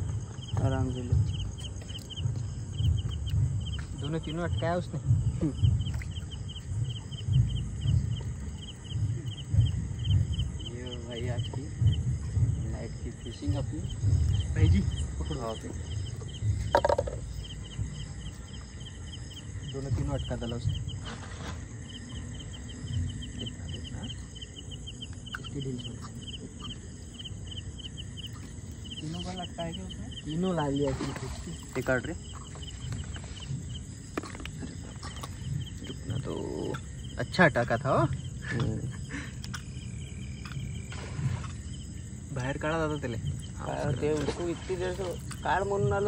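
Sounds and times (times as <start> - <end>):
crickets chirping: 0.0 - 46.0
low uneven rumble: 0.0 - 46.0.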